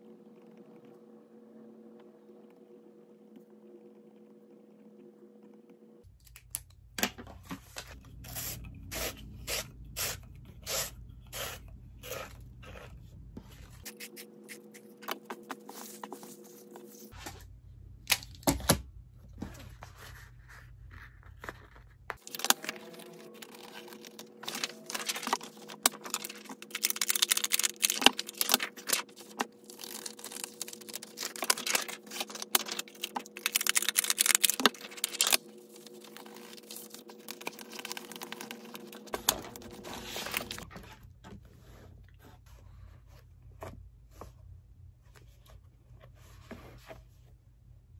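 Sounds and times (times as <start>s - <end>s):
paper rustling and shuffling: 13.4s - 17.5s, 19.4s - 41.8s.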